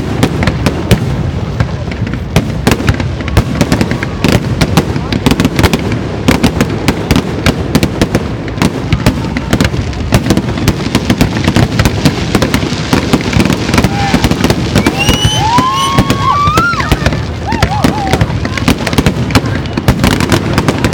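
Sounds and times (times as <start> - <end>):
fireworks bangs and crackles: 0.0 - 20.9
fireworks whistles: 10.3 - 20.9.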